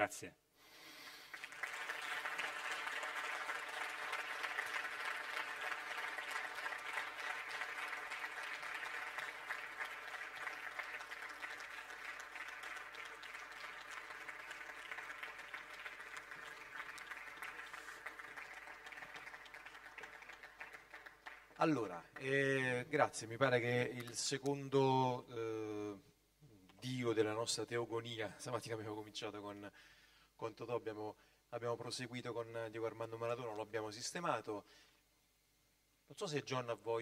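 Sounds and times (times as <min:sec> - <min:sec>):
audience applauding: 0:01.1 - 0:22.4.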